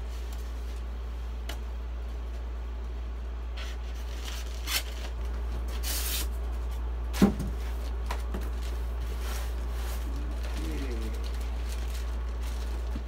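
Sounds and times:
plastic wrapping rustling: 7.6 - 13.0.

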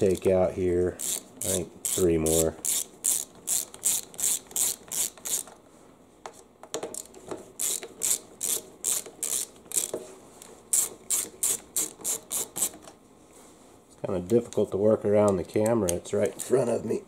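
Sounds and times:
ratcheting screwdriver clicking: 1.0 - 5.5, 7.0 - 10.0.

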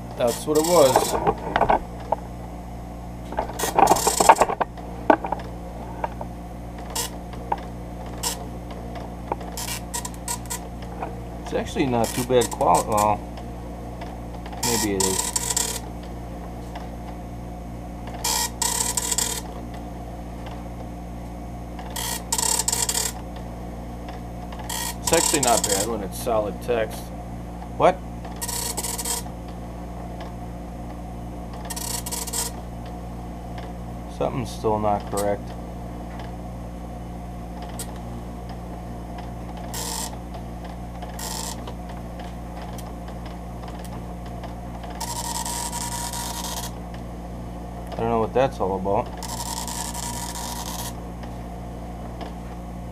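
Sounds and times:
dot matrix printer buzzing: 0.0 - 2.3, 3.2 - 17.2, 18.0 - 20.7, 21.7 - 26.5, 28.2 - 30.4, 31.5 - 33.8, 37.5 - 47.0, 49.0 - 51.4
steady low hum: 0.0 - 52.9.

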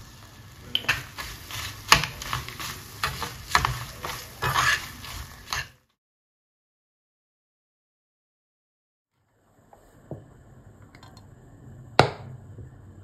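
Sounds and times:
low sizzle: 0.0 - 6.0, 9.2 - 13.0
spoon scraping and clinking on pan: 0.7 - 5.8.

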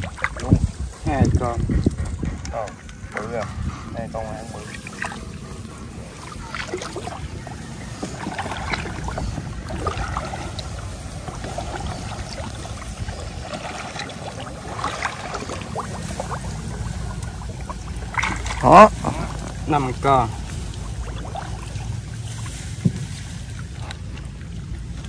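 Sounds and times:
water sloshing and splashing: 0.0 - 25.0
rustles: 15.6 - 25.0.

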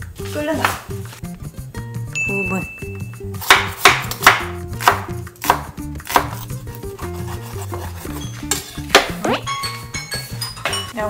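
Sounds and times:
knife slicing meat: 3.5 - 9.0.

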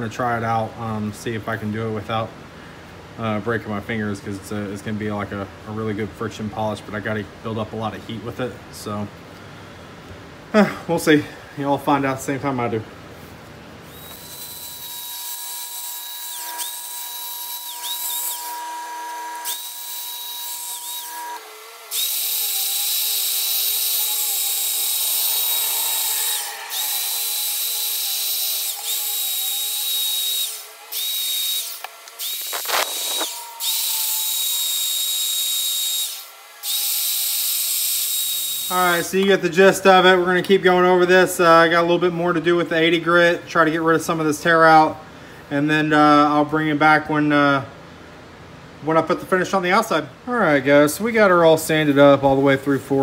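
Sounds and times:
electric drill motor whine: 13.8 - 39.0.

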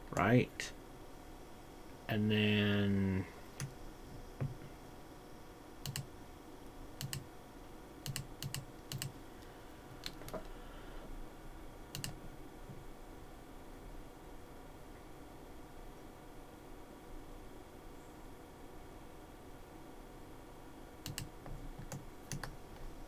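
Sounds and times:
keyboard and mouse clicks: 5.8 - 6.1, 7.0 - 7.2, 8.0 - 9.1, 11.9 - 12.2, 21.0 - 22.6.

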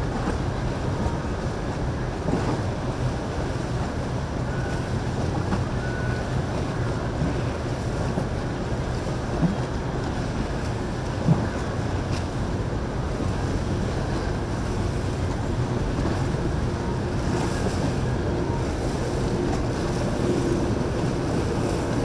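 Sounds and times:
motorboat engine humming: 0.0 - 22.0
water wash: 0.0 - 22.0
wind on microphone: 6.9 - 22.0.

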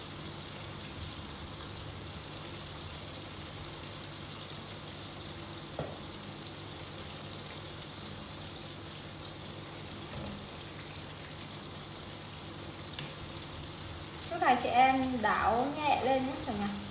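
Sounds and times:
potatoes sizzling in hot oil: 0.0 - 16.9.

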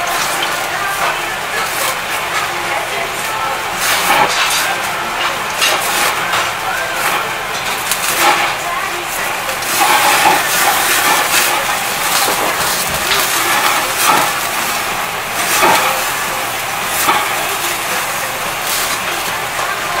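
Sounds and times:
fat crackling and popping: 0.0 - 20.0
meat sizzling on grill: 0.0 - 20.0.

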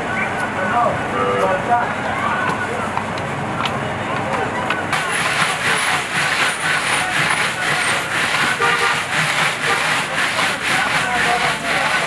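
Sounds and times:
road traffic passing: 0.0 - 12.0
car horn toot: 1.1 - 1.6, 8.6 - 9.1.

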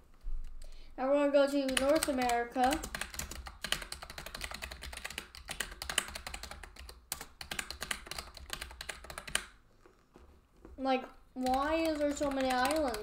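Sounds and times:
fast typing on keyboard: 1.6 - 9.6, 11.4 - 13.0.

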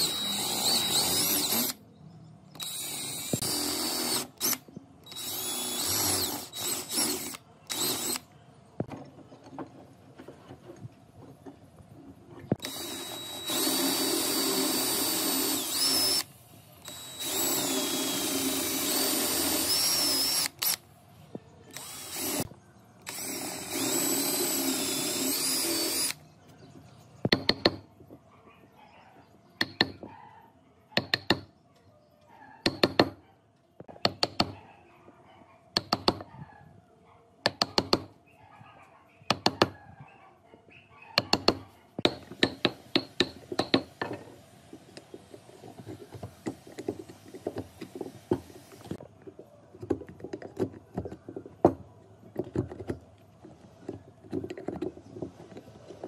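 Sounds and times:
power drill boring into wood: 0.0 - 1.8, 2.6 - 8.2, 12.6 - 20.8, 21.7 - 26.2.

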